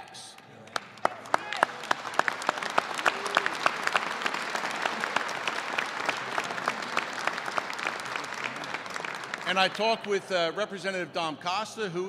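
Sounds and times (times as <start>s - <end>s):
audience clapping: 0.4s - 10.4s.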